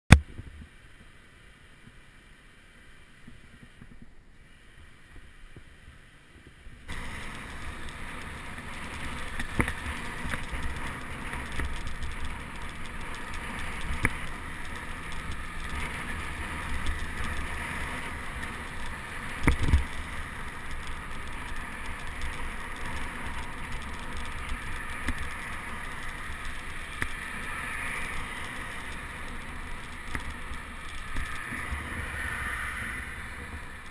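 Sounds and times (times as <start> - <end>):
wind and road noise: 0.1 - 33.9
car traffic passing: 25.3 - 33.9.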